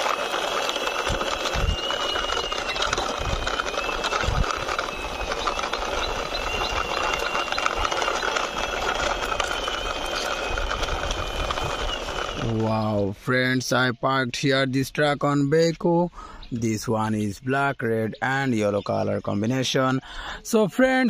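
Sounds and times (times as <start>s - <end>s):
thin high whine: 0.0s - 13.1s
toy wheels rattling over concrete: 0.0s - 21.0s.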